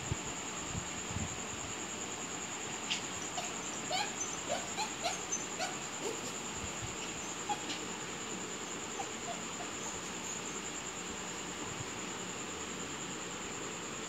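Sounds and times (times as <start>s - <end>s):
puppy whimpering: 2.9s - 8.0s, 8.6s - 10.6s.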